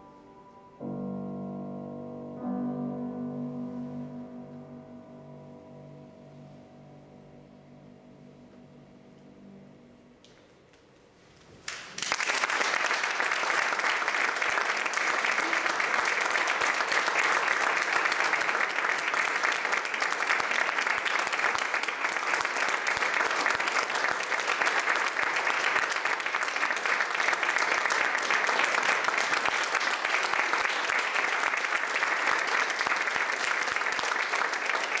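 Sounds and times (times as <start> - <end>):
audience applauding: 11.6 - 35.0.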